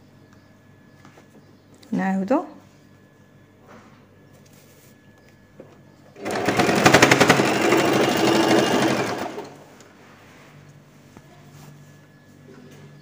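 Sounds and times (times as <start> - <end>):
sewing machine stitching: 6.2 - 9.7.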